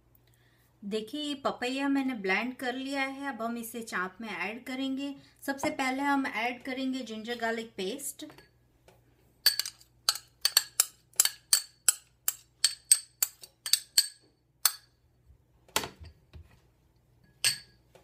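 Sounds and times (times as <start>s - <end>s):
spoon clinking ceramic bowl: 9.4s - 14.9s, 17.2s - 17.8s.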